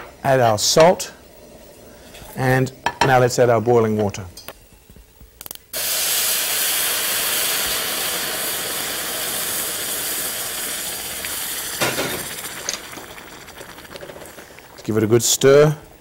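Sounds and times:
water hissing in hot pan: 5.7 - 16.0.

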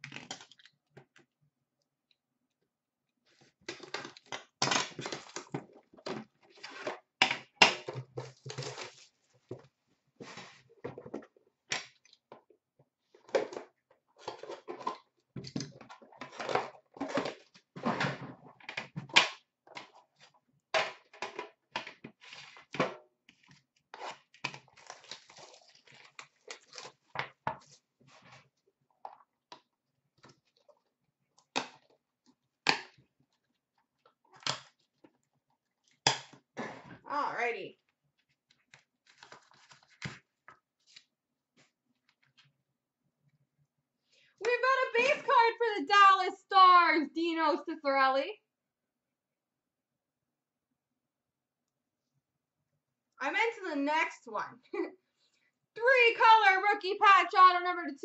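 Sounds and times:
packaging crinkling and tearing: 24.0 - 27.1, 38.5 - 40.3.

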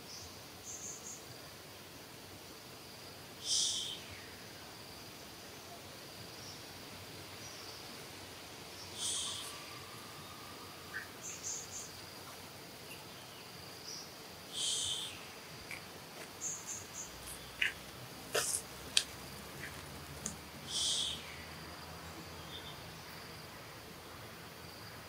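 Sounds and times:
high insect drone: 0.0 - 25.0
loud high calls: 8.9 - 11.9, 14.5 - 21.6.

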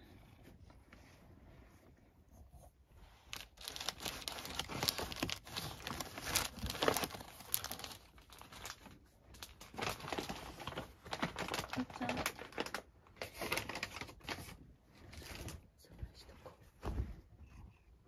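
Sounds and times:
wrapping rustling and tearing: 3.2 - 15.6.

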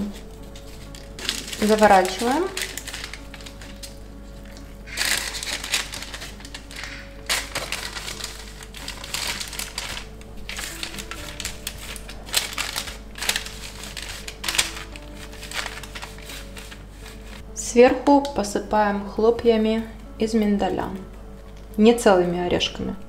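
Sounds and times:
parchment paper crinkling: 0.0 - 17.4
soft background music: 0.0 - 23.0.

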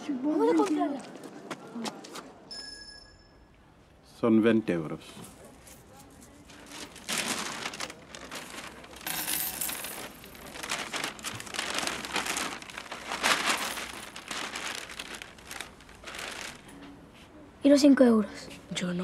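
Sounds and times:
plastic bag rustling: 5.6 - 17.0.

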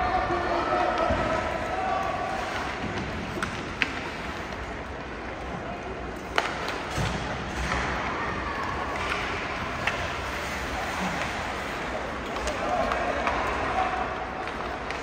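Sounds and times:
hockey sticks and puck clacking: 0.2 - 15.0.

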